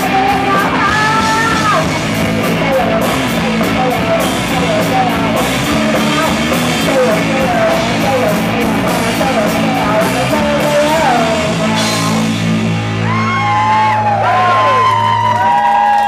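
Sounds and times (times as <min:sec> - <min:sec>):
woman singing: 0:00.0 - 0:12.3
drum kit: 0:00.0 - 0:15.7
electric bass: 0:00.0 - 0:16.0
electric guitar: 0:00.0 - 0:16.0.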